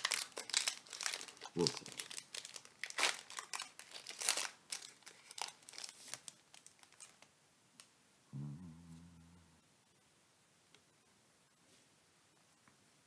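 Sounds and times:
foil pack crinkling and tearing: 0.0s - 7.3s.

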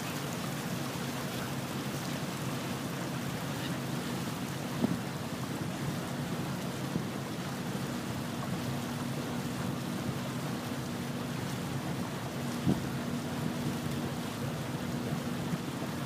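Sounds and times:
boat engine humming: 0.0s - 16.0s
wind and water rushing: 0.0s - 16.0s.

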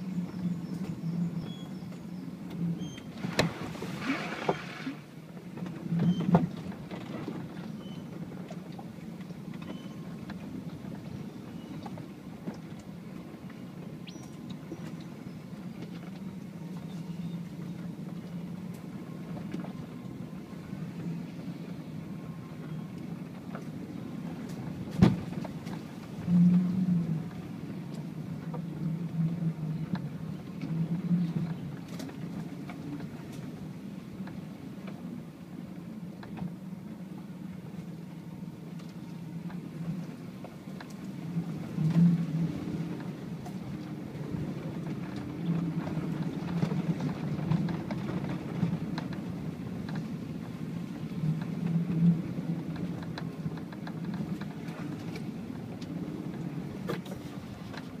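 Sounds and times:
engine low drone: 0.0s - 58.0s
clicks and knocks from rough track: 42.9s - 58.0s.

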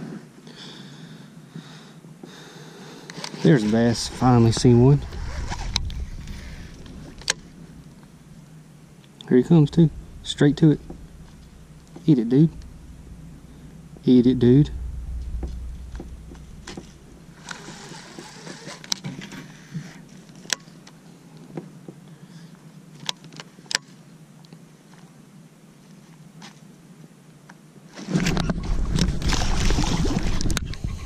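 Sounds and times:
fish splashing and thrashing in water: 28.5s - 30.9s.

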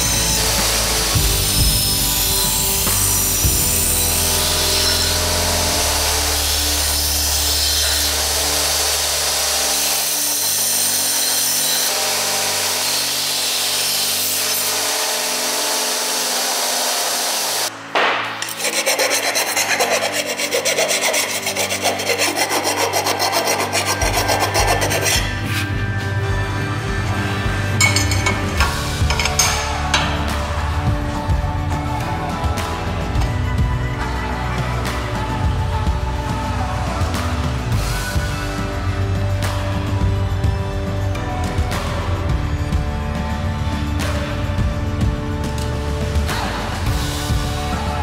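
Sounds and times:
background music with bass line: 0.0s - 11.0s, 18.0s - 48.0s
belt grinder grinding steel pipe: 0.0s - 17.7s, 18.4s - 34.3s.

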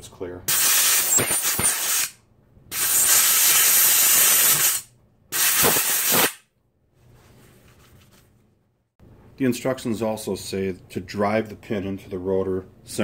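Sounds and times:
compressed air blow gun hissing: 0.5s - 2.1s, 2.7s - 4.8s, 5.4s - 6.4s.

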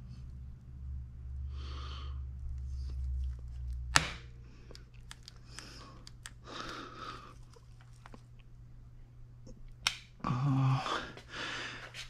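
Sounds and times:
close breathing: 1.4s - 3.0s, 4.4s - 7.8s, 10.3s - 12.0s.

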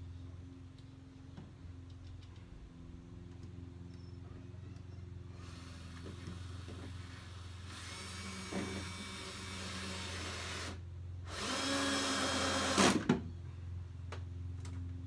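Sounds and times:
power drill driving screw: 7.6s - 13.0s.

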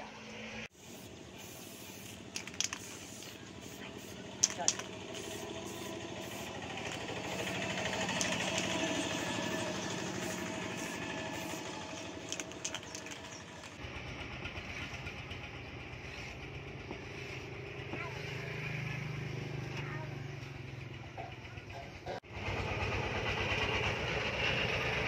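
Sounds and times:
engine running: 0.0s - 25.0s
sharp clicks: 4.4s - 5.2s, 6.7s - 9.7s, 11.1s - 13.8s.

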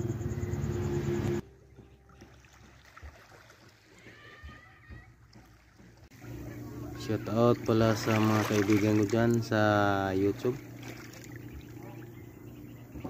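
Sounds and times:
steady low hum: 0.0s - 2.8s, 6.0s - 13.0s
small waves lapping on pebbles: 7.6s - 9.5s, 10.2s - 11.7s.

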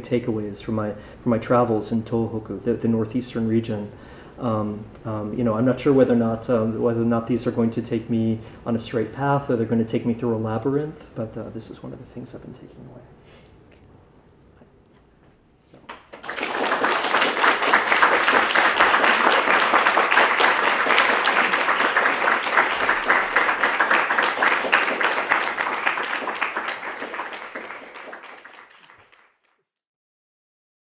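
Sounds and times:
audience applauding: 15.9s - 29.6s.

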